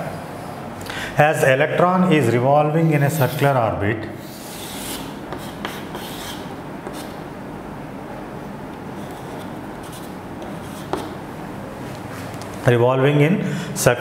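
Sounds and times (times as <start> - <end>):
chalk scraping on chalkboard: 3.0 - 3.5, 4.2 - 7.2, 9.0 - 11.2
chalk tapping: 4.2 - 7.2, 9.0 - 11.2.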